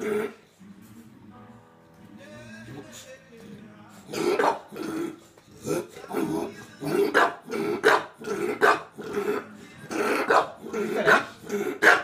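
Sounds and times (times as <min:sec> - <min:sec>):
dog barking: 0:04.1 - 0:05.1, 0:06.2 - 0:12.0.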